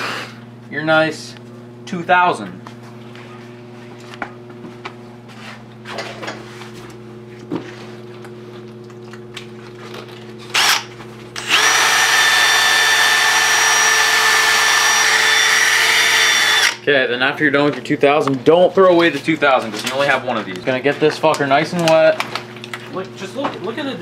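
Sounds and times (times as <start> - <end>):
cordless drill motor whine: 0.0 - 0.4, 10.5 - 16.8.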